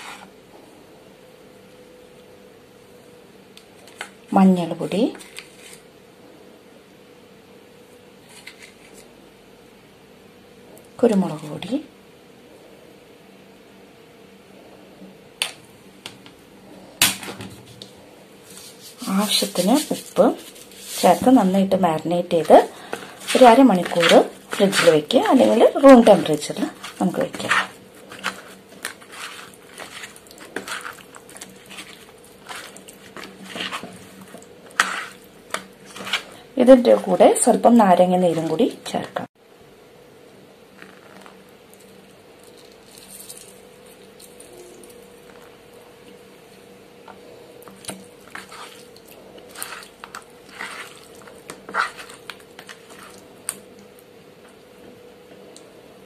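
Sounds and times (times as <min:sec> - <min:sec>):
faint steady hum: 0:00.0 - 0:56.0
wet squelches of prawns mixed: 0:18.9 - 0:38.8, 0:47.7 - 0:53.8
wet squishing of prawns by hand: 0:47.7 - 0:53.6.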